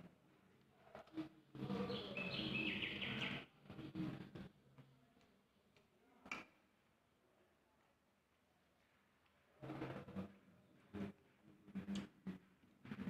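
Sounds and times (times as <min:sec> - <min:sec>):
bird chirping: 0:01.7 - 0:03.4.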